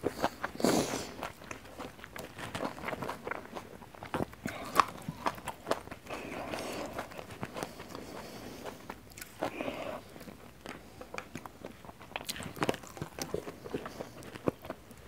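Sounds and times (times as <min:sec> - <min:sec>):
crunchy chewing: 0:00.0 - 0:15.0.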